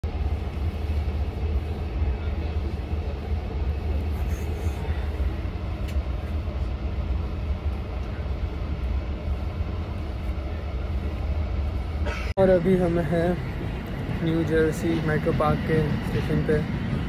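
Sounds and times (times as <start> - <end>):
train rumble and hiss: 0.0 - 17.0
faint click: 5.8 - 6.0.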